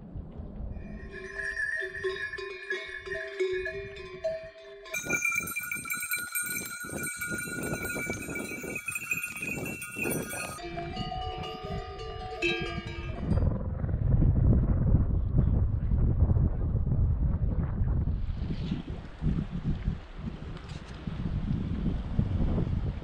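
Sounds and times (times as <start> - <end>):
animal bells clanking and ringing: 0.8 - 13.5.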